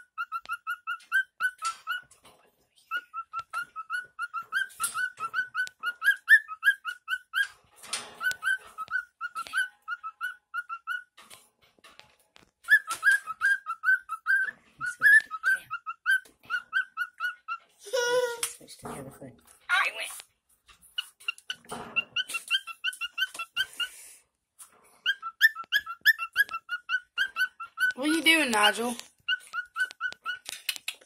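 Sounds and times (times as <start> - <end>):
cockatiel whistled chirps: 0.0 - 2.1, 2.9 - 7.6, 8.2 - 11.2, 12.6 - 17.6, 21.0 - 24.0, 25.0 - 28.0, 29.3 - 30.5.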